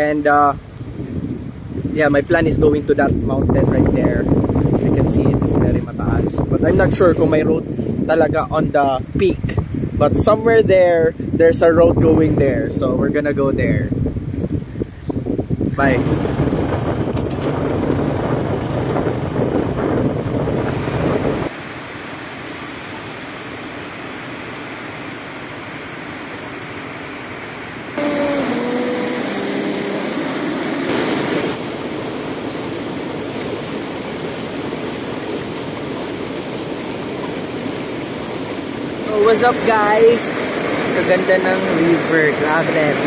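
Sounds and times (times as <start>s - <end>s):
wind on microphone: 0.0s - 21.6s, 28.0s - 43.0s
motorcycle riding: 15.8s - 21.5s, 28.0s - 31.6s
river rapids rushing: 21.5s - 43.0s.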